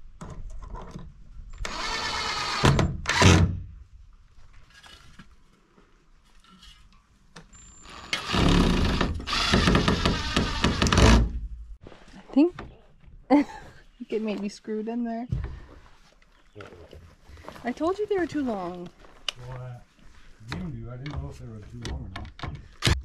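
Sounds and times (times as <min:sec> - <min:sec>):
cordless drill driving screws: 0:01.6 - 0:03.4, 0:07.8 - 0:11.3.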